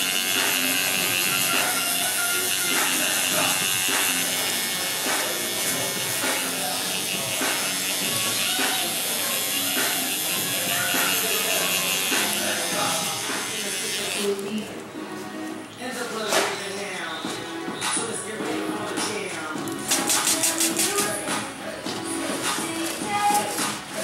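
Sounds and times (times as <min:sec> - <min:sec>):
tattoo machine buzzing: 0:00.0 - 0:14.6, 0:19.7 - 0:21.2
music playing: 0:00.0 - 0:24.0.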